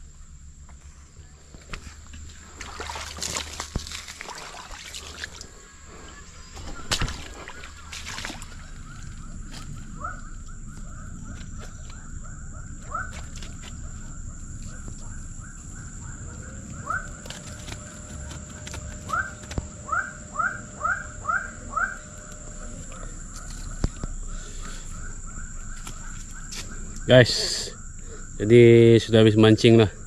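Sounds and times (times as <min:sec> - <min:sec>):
steady high whine: 0:00.0 - 0:30.0
footsteps crunching through debris: 0:01.5 - 0:05.4, 0:06.5 - 0:20.2.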